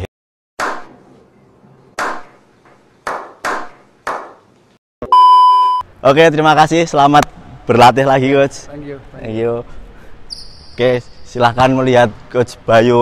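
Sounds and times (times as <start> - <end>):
electronic beep: 5.0 - 5.8.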